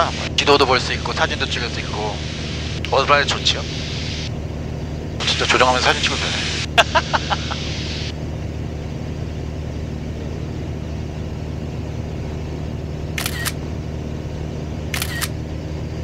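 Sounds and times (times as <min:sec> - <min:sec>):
light aircraft engine drone: 0:00.0 - 0:16.0
camera shutter click: 0:13.2 - 0:13.6, 0:15.0 - 0:15.4.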